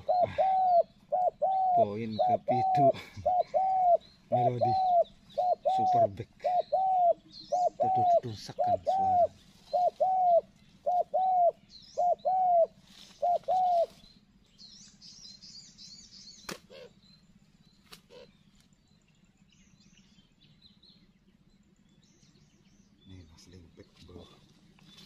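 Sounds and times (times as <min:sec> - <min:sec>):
dove cooing: 0:00.0 - 0:14.1, 0:16.6 - 0:17.0, 0:18.1 - 0:18.4
small bird twittering: 0:00.0 - 0:25.0.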